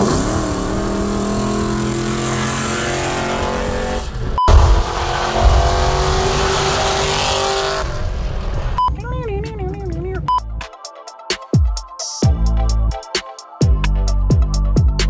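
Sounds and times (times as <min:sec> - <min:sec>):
car engine cruising: 0:00.0 - 0:10.2.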